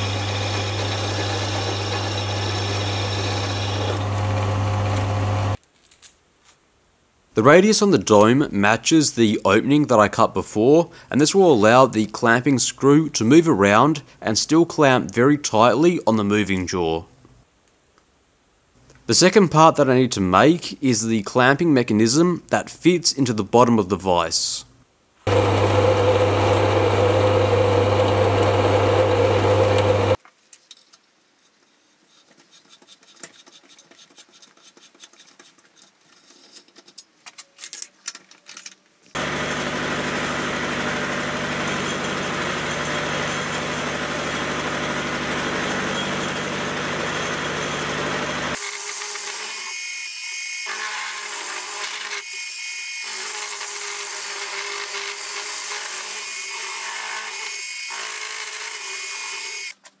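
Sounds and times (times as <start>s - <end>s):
milling machine cutting steel: 0.0s - 5.6s, 25.3s - 30.2s, 39.2s - 59.7s
low motor hum: 25.3s - 30.2s.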